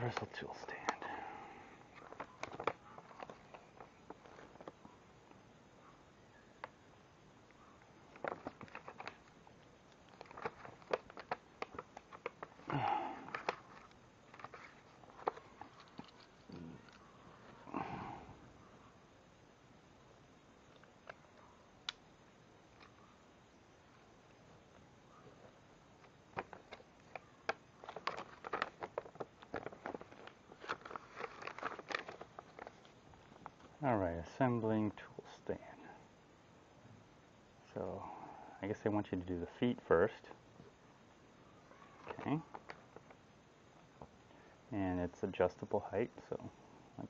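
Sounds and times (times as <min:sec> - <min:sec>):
paper pages turning: 0:01.9 - 0:04.8, 0:08.1 - 0:17.0, 0:26.0 - 0:33.7.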